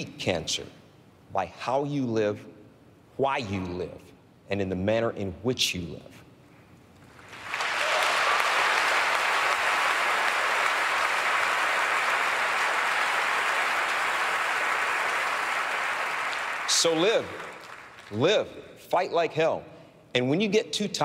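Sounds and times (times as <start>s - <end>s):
audience applauding: 7.1s - 18.2s.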